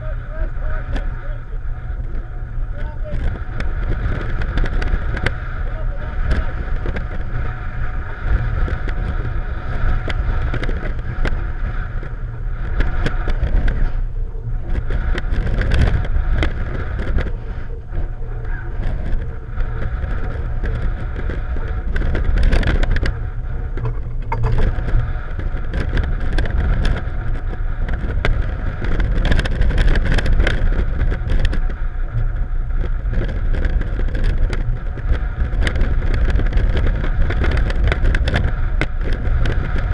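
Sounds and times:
outboard motors running: 0:00.0 - 0:39.9
wind rumble on microphone: 0:00.0 - 0:39.9
hull knocking on chop: 0:23.8 - 0:25.0.

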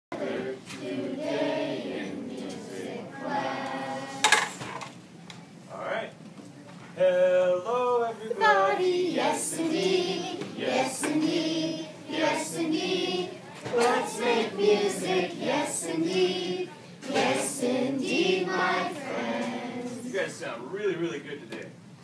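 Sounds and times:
children singing together: 0:00.1 - 0:04.3, 0:08.4 - 0:20.0.

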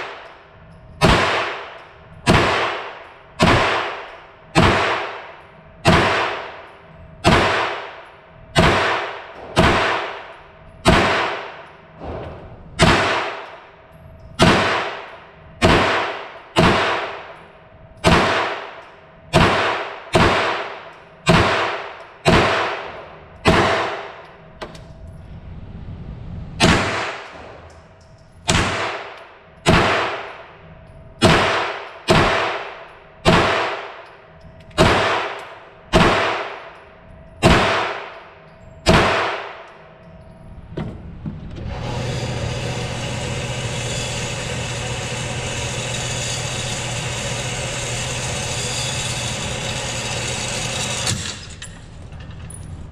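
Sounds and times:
gunshots echoing: 0:01.0 - 0:13.8, 0:14.4 - 0:17.4, 0:18.0 - 0:24.2, 0:26.6 - 0:30.4, 0:31.2 - 0:34.0, 0:34.8 - 0:36.8, 0:37.4 - 0:38.2, 0:38.8 - 0:39.7.

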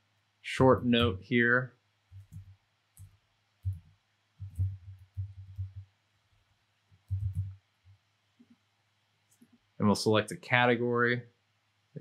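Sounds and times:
computer keyboard typing: 0:02.1 - 0:03.8, 0:04.4 - 0:05.8, 0:07.0 - 0:07.6.

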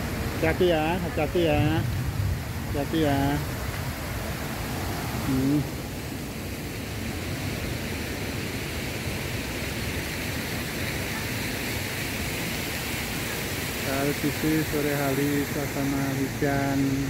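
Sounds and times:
rain falling: 0:00.0 - 0:17.0.

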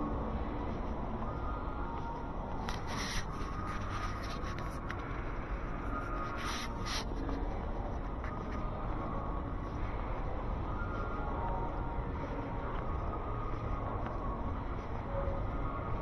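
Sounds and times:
indoor mall rumble: 0:00.0 - 0:16.0
scuffing rubs: 0:05.8 - 0:08.6.

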